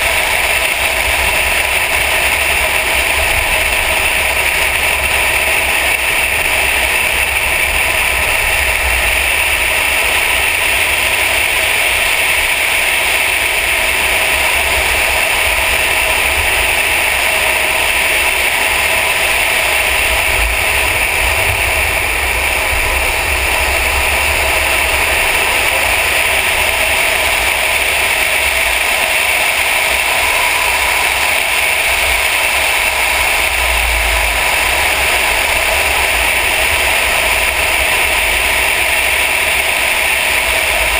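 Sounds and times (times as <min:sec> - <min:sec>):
road noise: 0:00.0 - 0:40.9
wind rush: 0:00.0 - 0:40.9
microphone buffeting rumble: 0:17.5 - 0:38.9.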